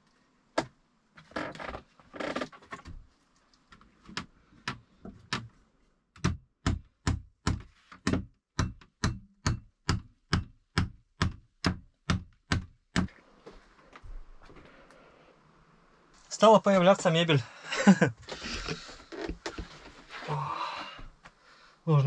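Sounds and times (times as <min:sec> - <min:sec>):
hammering on wood: 0:06.2 - 0:13.1.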